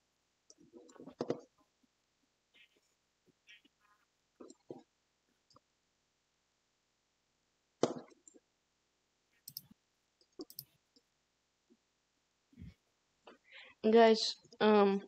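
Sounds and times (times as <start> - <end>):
sharp clicks and knocks: 10.4 - 10.7.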